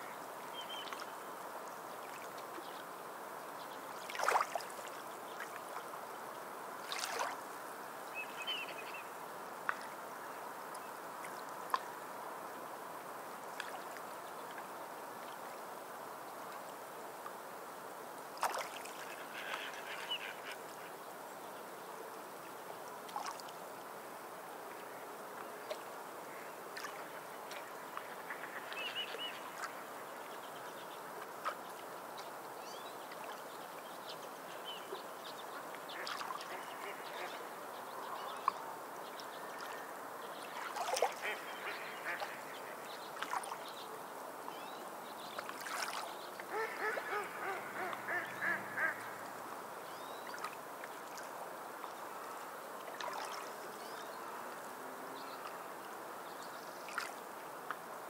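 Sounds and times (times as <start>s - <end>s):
birds calling: 46.5s - 49.3s.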